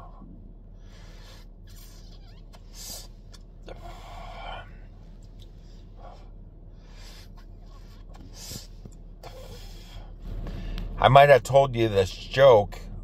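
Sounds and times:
low steady hum: 0:00.0 - 0:13.0
breathy exhale: 0:00.7 - 0:02.0, 0:03.7 - 0:05.0, 0:05.6 - 0:11.0
hissing cigarette drag: 0:06.9 - 0:10.9.

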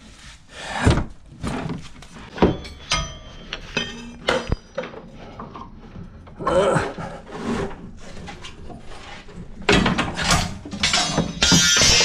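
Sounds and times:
metal tools clanking: 0:01.5 - 0:06.4, 0:09.7 - 0:12.0.

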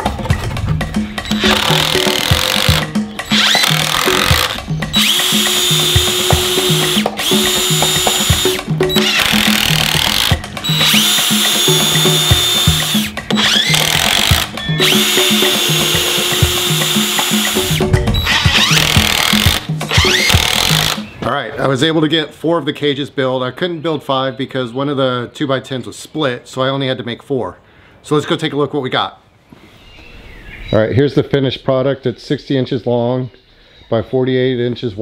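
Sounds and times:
background music with beat: 0:00.0 - 0:21.2
cordless drill driving screws: 0:01.3 - 0:21.1.

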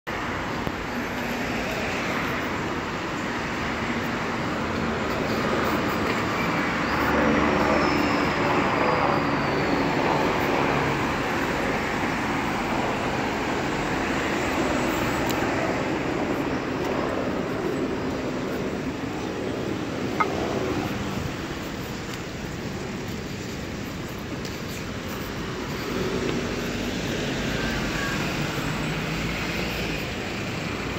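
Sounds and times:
passing cars and vans: 0:00.1 - 0:30.9.

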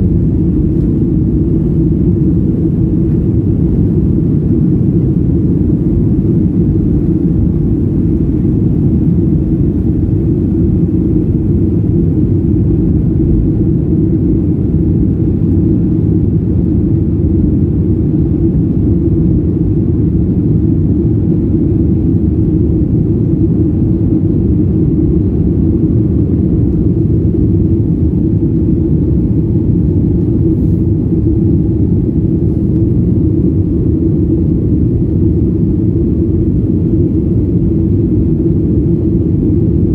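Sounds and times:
jet engines roaring in cabin: 0:00.0 - 0:39.9
rushing air: 0:28.2 - 0:34.3.

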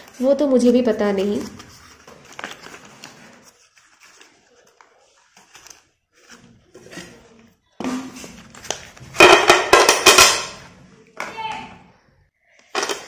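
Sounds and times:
pencils clattering onto a plate: 0:07.8 - 0:10.7, 0:12.6 - 0:13.0.

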